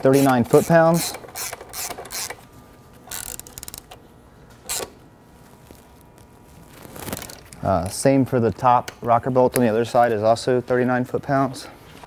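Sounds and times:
ratchet wrench clicking: 0:01.0 - 0:02.4, 0:03.1 - 0:04.0.

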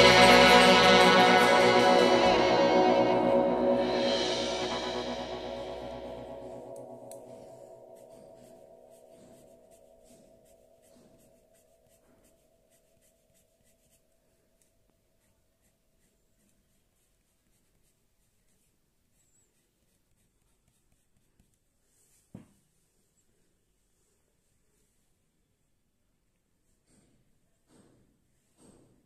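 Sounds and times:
pencil scratching on paper: 0:08.0 - 0:14.1, 0:15.2 - 0:21.7.

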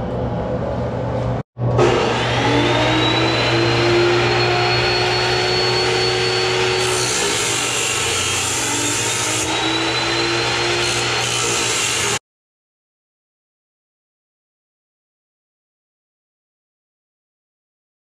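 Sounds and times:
chop saw cutting steel: 0:01.8 - 0:12.2.

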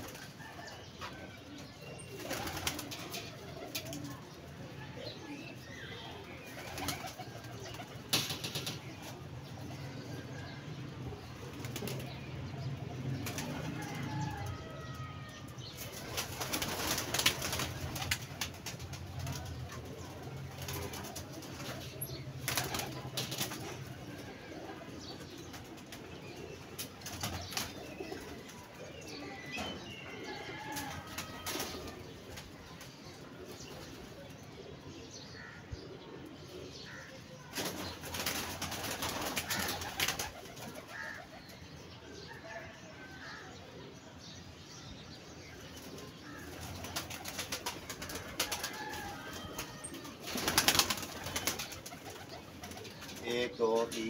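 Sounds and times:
pigeons cooing: 0:00.0 - 0:14.8, 0:15.7 - 0:44.1, 0:45.6 - 0:54.0
pigeons flapping wings: 0:02.1 - 0:04.1, 0:06.6 - 0:09.2, 0:11.5 - 0:12.2, 0:13.2 - 0:14.0, 0:15.8 - 0:24.7, 0:26.7 - 0:28.4, 0:37.5 - 0:41.2, 0:46.3 - 0:53.2.

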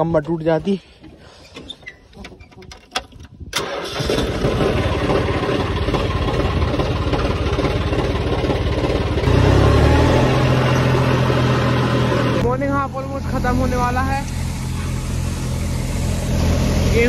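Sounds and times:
tractor diesel engine starting: 0:03.4 - 0:17.0.

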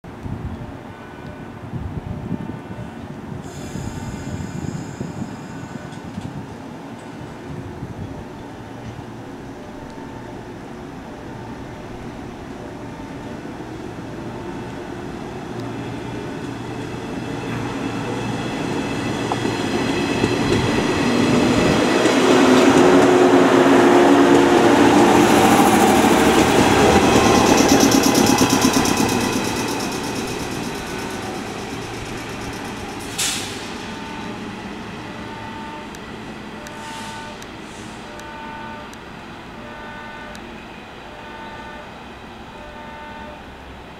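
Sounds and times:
electric train running: 0:14.6 - 0:36.0
brief sharp hiss: 0:33.0 - 0:33.9, 0:36.7 - 0:38.1.

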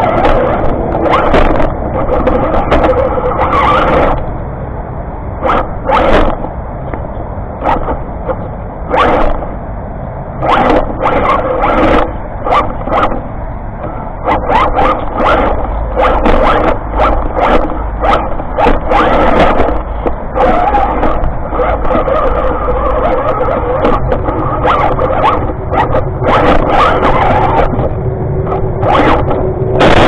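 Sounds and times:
toy car motor whining: 0:08.9 - 0:09.4, 0:10.4 - 0:13.2, 0:13.9 - 0:27.9.

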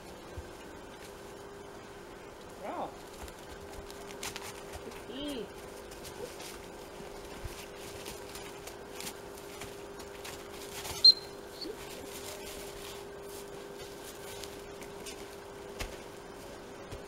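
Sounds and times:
footsteps in thin snow: 0:05.8 - 0:17.0
sharp whistle blast: 0:11.0 - 0:11.4.

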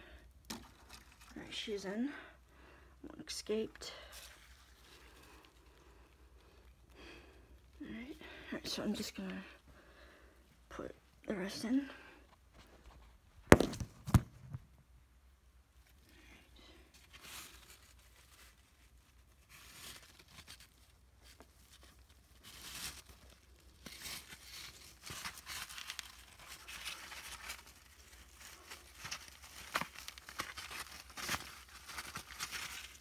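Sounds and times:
cloth bag rustling and crinkling: 0:17.0 - 0:33.0.

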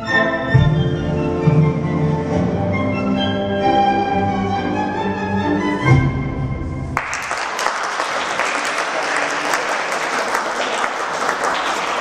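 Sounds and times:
classical music: 0:00.0 - 0:07.3
audience applauding: 0:07.0 - 0:12.0.

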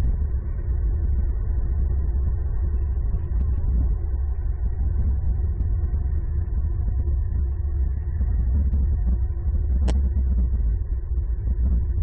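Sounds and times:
steady low rumble: 0:00.0 - 0:12.0
faint ticks: 0:09.8 - 0:10.5.

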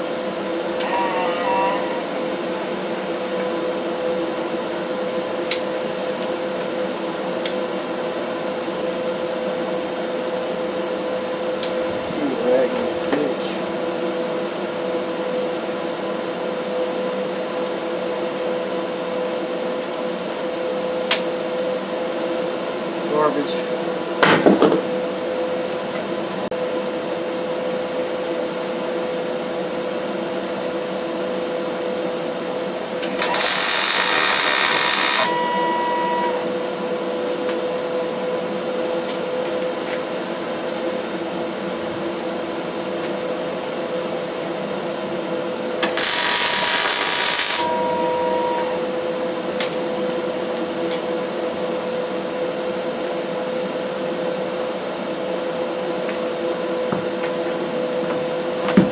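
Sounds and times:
steady hum: 0:00.0 - 0:24.2, 0:31.8 - 0:58.9
welder arc: 0:00.8 - 0:02.3, 0:33.0 - 0:36.4, 0:45.8 - 0:48.8.

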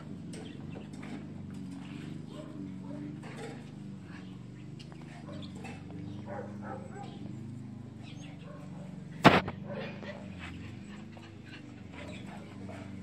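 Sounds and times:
steady low hum: 0:00.0 - 0:13.0
faint dog sounds: 0:01.7 - 0:13.0
sharp loud crack: 0:09.2 - 0:09.6.

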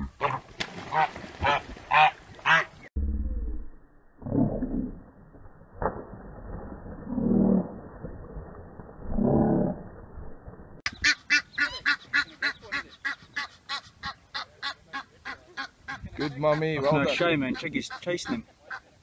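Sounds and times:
goose honking: 0:10.9 - 0:18.9.

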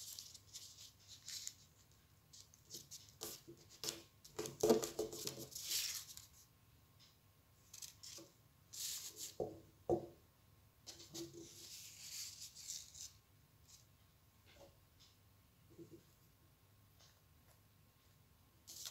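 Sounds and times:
paper rustling and crinkling: 0:00.0 - 0:06.4.

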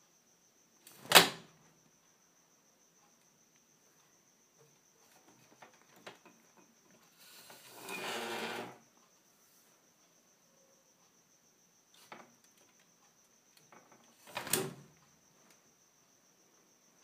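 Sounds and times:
faint ticks: 0:01.8 - 0:07.4.

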